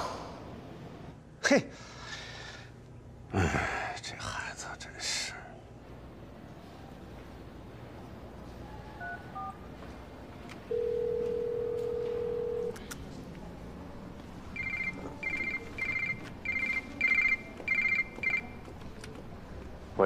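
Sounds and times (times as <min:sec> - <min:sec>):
keypad beeps: 0:09.0 - 0:09.6, 0:14.6 - 0:18.8
phone ringing trills: 0:10.7 - 0:12.8, 0:14.5 - 0:18.7
steady phone tone: 0:10.7 - 0:12.8, 0:14.5 - 0:18.6.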